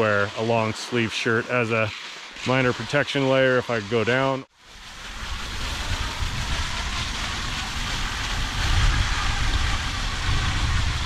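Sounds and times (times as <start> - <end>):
wind buffeting microphone: 4.8 - 11.0.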